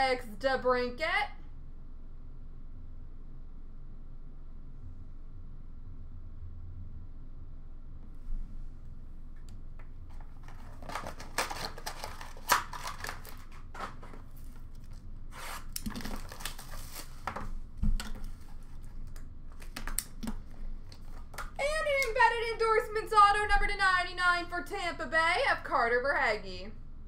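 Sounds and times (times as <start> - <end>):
pack tearing open: 10.1 - 18.9
wrappers rustling and crinkling: 10.1 - 21.6.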